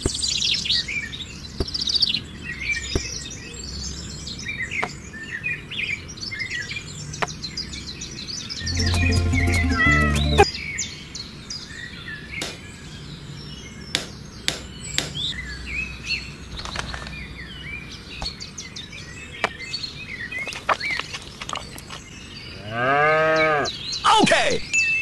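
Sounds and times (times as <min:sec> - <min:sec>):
songbirds chirping: 0:00.0 - 0:25.0
cow mooing: 0:22.6 - 0:23.7.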